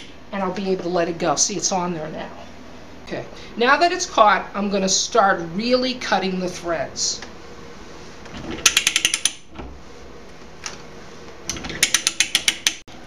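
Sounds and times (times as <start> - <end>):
ratcheting pipe threader clicking: 8.6 - 9.5, 11.5 - 12.8.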